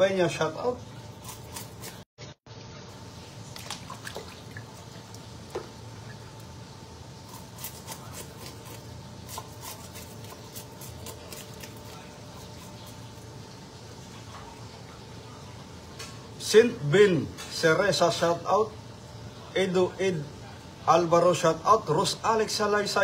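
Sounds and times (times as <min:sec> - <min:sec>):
faint steady hum: 0:00.0 - 0:23.0
knife cleaning fish: 0:01.2 - 0:02.0, 0:07.2 - 0:14.6.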